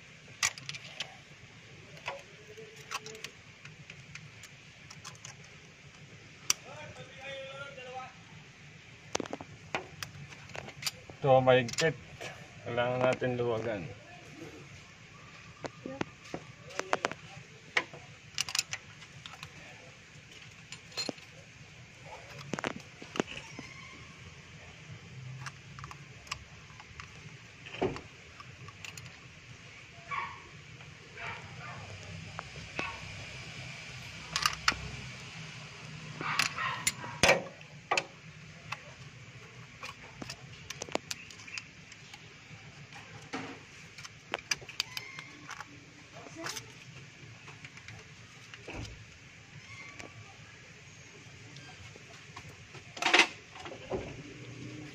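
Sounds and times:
metal tools clinking on engine: 0:20.5 - 0:21.4, 0:36.2 - 0:38.1.

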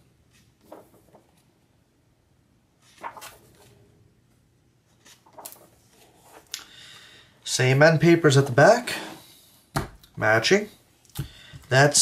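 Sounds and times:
book pages turning: 0:00.2 - 0:01.5, 0:02.8 - 0:03.8, 0:04.9 - 0:06.5.

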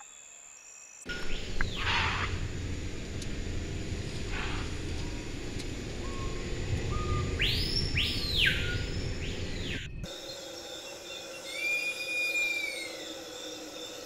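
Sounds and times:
vehicle cabin rumble: 0:01.1 - 0:10.1.

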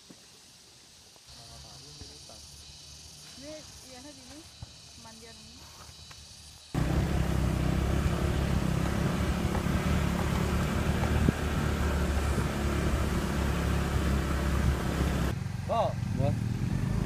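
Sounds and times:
motor scooter engine running: 0:06.8 - 0:17.0.

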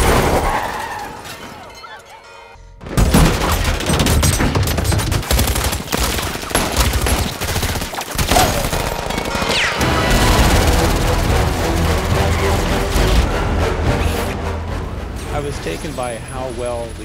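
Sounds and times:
action music: 0:08.5 - 0:17.0.

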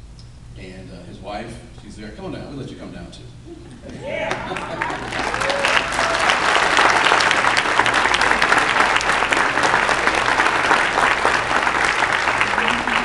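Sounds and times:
audience applauding: 0:04.0 - 0:13.0.

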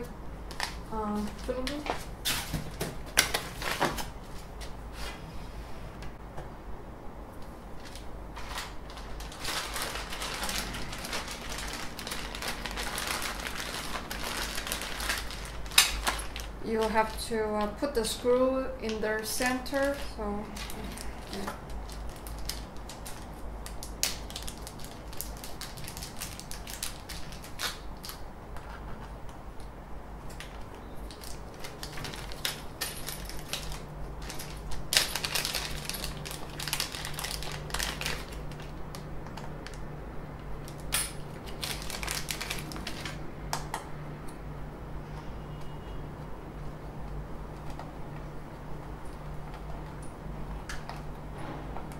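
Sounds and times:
steady low hum: 0:00.0 - 0:51.9
plastic packaging crinkling: 0:00.5 - 0:04.6, 0:07.8 - 0:17.3, 0:19.2 - 0:28.3, 0:30.4 - 0:39.9, 0:40.6 - 0:43.2.

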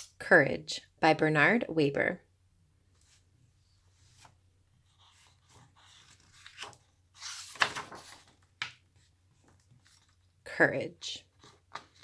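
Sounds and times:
paper rustling: 0:03.9 - 0:10.3.

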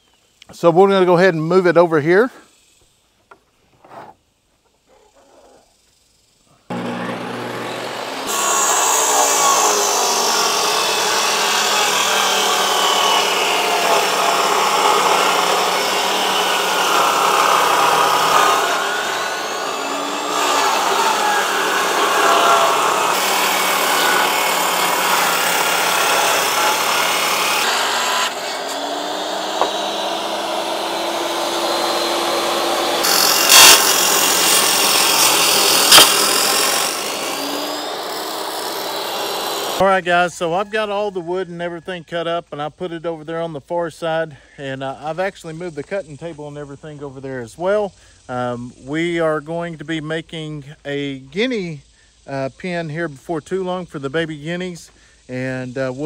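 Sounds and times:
table saw ripping wood: 0:06.7 - 0:39.8.

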